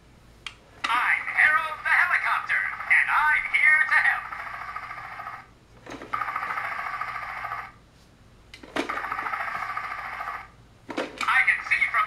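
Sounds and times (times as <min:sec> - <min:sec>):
toy pulsing electronic buzz: 0:01.3 - 0:05.5, 0:06.1 - 0:07.8, 0:08.9 - 0:10.6.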